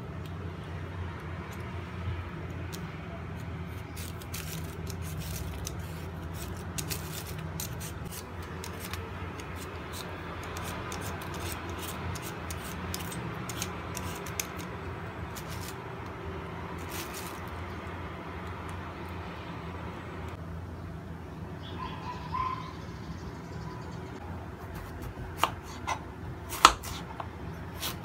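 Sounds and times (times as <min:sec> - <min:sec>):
peeler scraping sweet potato: 0:02.6 - 0:15.8, 0:16.7 - 0:17.8, 0:24.6 - 0:28.0.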